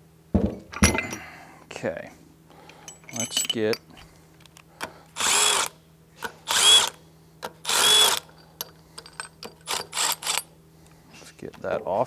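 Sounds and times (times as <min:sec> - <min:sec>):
cordless driver running: 0:05.2 - 0:05.8, 0:06.5 - 0:07.0, 0:07.6 - 0:08.3, 0:09.6 - 0:10.5.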